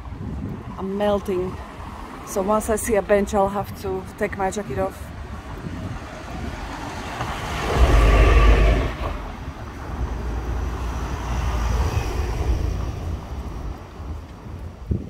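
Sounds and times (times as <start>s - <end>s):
street traffic: 0.0s - 15.0s
vehicle driving past: 6.8s - 13.4s.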